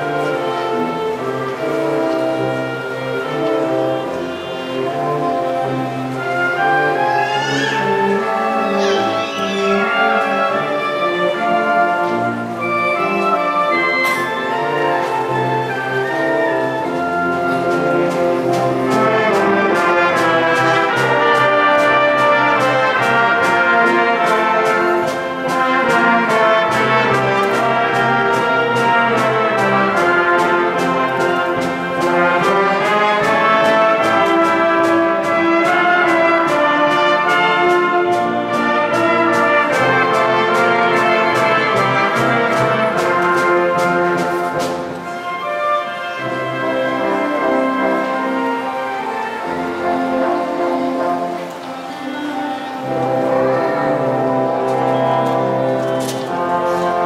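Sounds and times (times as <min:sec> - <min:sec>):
trumpets and trombones: 0:00.0 - 0:57.0
wind band playing: 0:00.0 - 0:57.0
percussion strokes: 0:00.2 - 0:57.0.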